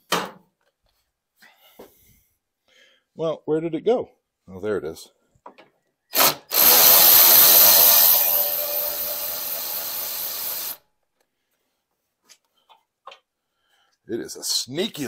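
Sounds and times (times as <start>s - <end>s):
impact wrench running: 6.2s - 10.8s.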